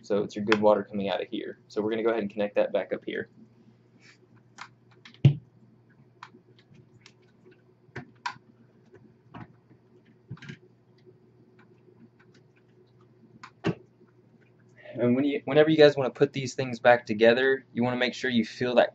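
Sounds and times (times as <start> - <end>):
faint low hum: 0.0 - 18.9.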